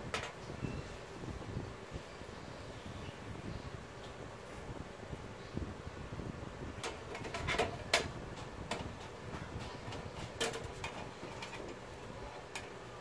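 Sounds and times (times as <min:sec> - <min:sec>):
metal parts clicking and tapping: 0:06.8 - 0:12.8.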